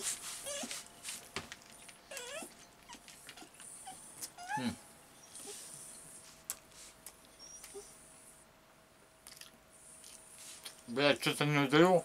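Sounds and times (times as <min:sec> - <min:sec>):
dog whimpering: 0:00.0 - 0:00.8, 0:02.0 - 0:06.0, 0:07.3 - 0:08.0.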